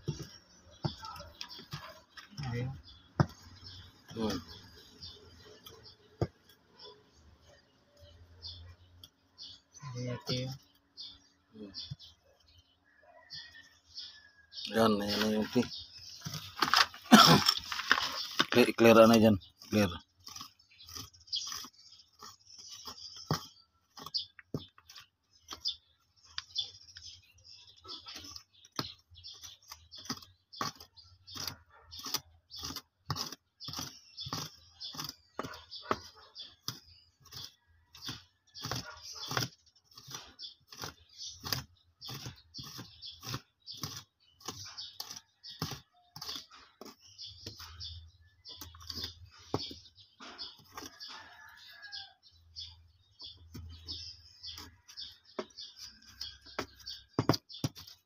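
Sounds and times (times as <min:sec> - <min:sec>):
hand tool scraping in soil: 0:14.7 - 0:58.0.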